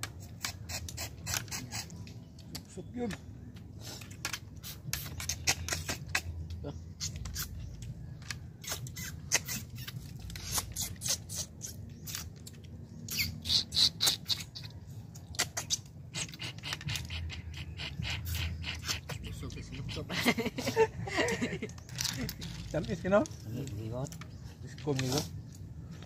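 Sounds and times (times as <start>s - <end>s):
people sucking snails from shells: 0.0s - 2.7s, 3.7s - 20.1s.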